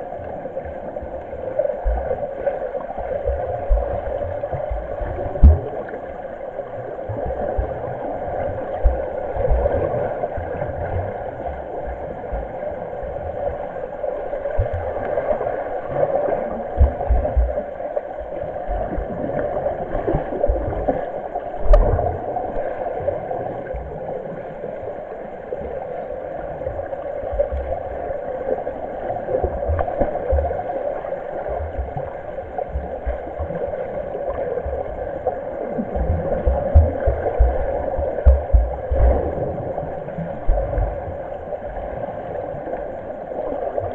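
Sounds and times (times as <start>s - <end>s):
muffled underwater churning: 0.0s - 43.9s
dull low knocks: 36.0s - 39.3s, 40.5s - 41.0s.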